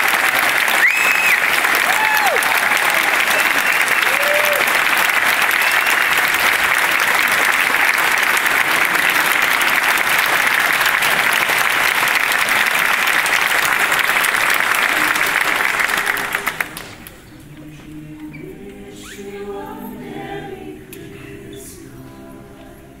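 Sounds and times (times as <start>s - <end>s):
large audience applauding: 0.0s - 17.2s.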